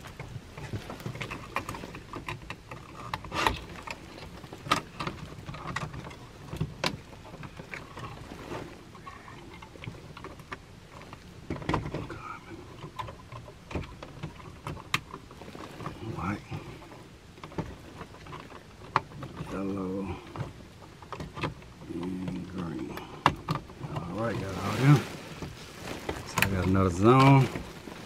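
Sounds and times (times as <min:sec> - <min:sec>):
wires rustling: 0:00.0 - 0:28.0.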